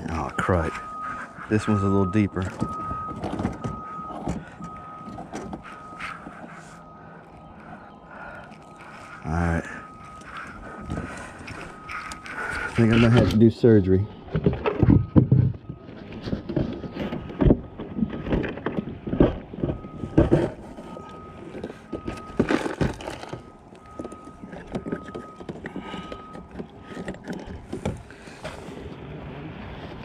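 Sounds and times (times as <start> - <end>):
knocks and rustles in boat: 0.1 - 6.8, 14.2 - 28.9.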